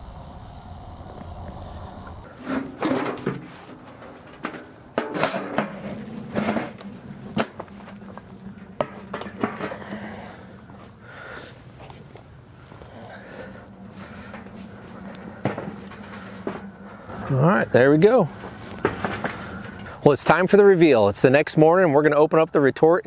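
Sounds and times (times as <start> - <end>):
wood fire burning: 0.0 - 20.5
metal clanks and knocks: 2.3 - 11.0, 12.8 - 20.0.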